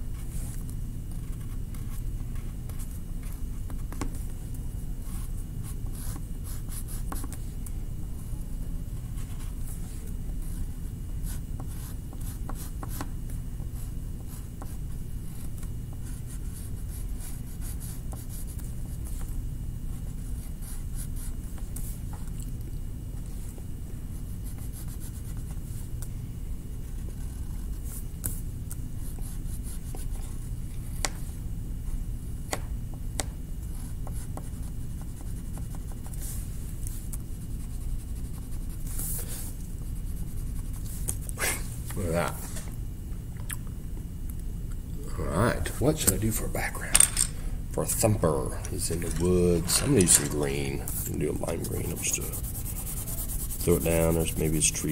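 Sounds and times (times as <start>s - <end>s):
steady low hum: 0.0s - 54.9s
drawing tool scratching on paper: 48.7s - 54.9s.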